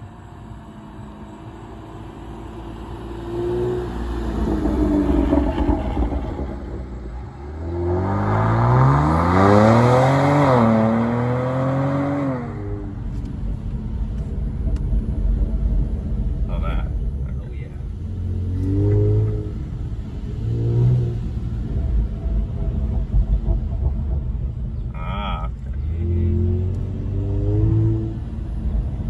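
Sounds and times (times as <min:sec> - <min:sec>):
car engine accelerating past: 0:02.1 - 0:13.0, 0:18.1 - 0:23.5, 0:25.7 - 0:28.8.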